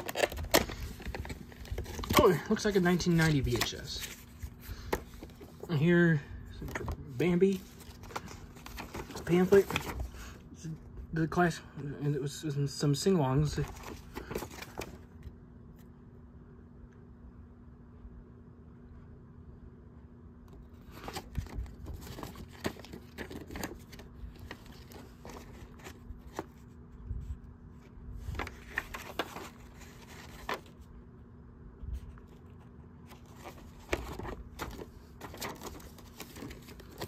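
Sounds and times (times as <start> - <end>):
paper and plastic rustling: 0.0 - 10.4, 13.4 - 15.3, 20.6 - 30.9, 32.0 - 37.0.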